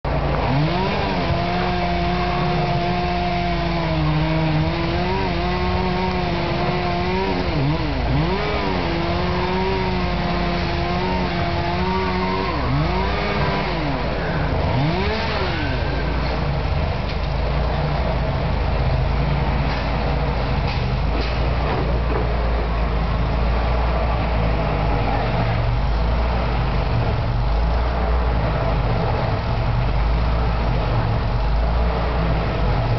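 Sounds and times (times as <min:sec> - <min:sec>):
chainsaw running at high revs: 0:00.3 - 0:16.8.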